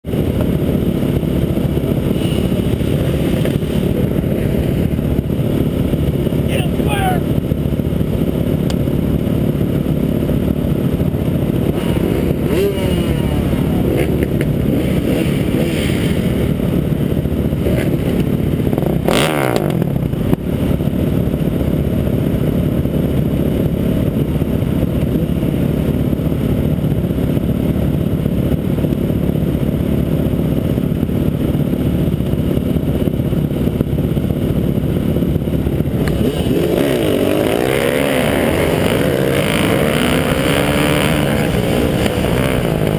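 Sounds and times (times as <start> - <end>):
dirt bike engines rumbling: 0.1 - 42.9
engine revving: 10.2 - 20.1, 35.6 - 42.9.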